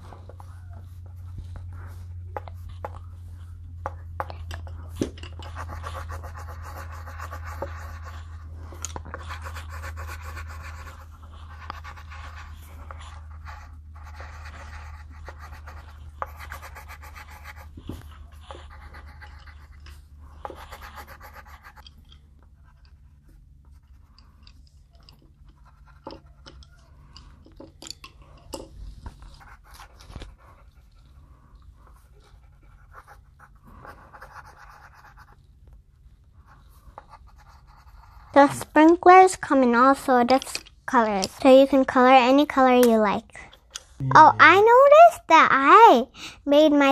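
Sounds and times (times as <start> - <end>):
pencils scratching on paper: 0.0 - 27.4, 28.2 - 35.4, 36.4 - 42.8
steady low hum: 0.0 - 39.9, 43.3 - 44.7.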